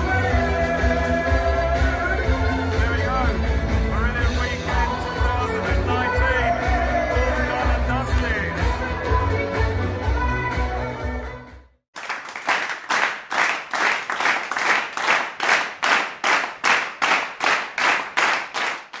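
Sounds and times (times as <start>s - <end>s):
live rock music: 0.0s - 11.4s
hands clapping: 12.0s - 19.0s.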